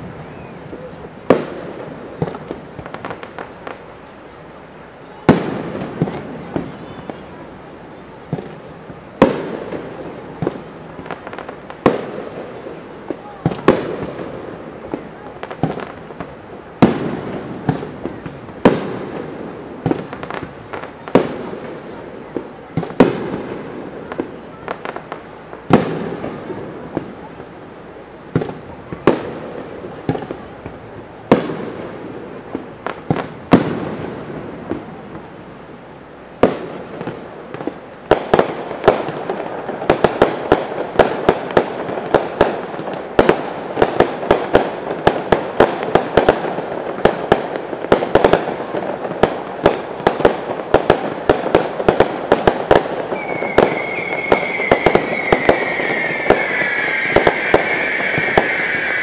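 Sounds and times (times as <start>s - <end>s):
fireworks bangs: 0.0s - 35.8s, 36.4s - 59.0s
falling whistling tone: 53.2s - 59.0s.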